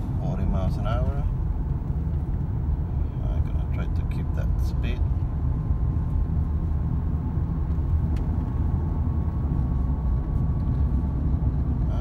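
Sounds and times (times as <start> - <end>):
car cabin road rumble: 0.0 - 12.0.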